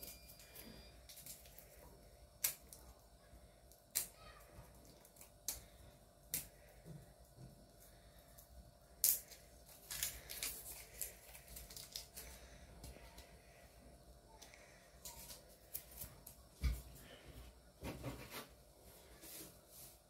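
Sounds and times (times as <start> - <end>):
faint crackling of crumbling cubes: 0.0 - 13.7, 14.3 - 16.4.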